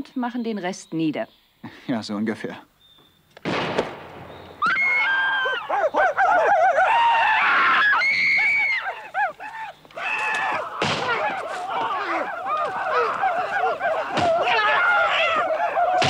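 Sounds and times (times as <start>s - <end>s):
people yelling war whoops: 4.6s - 16.0s.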